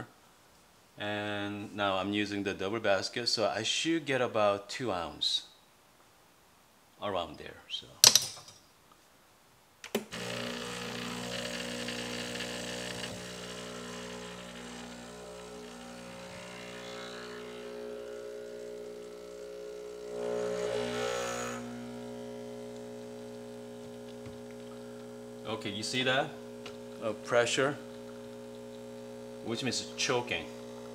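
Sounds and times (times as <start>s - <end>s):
espresso pump humming: 10.1s - 30.9s.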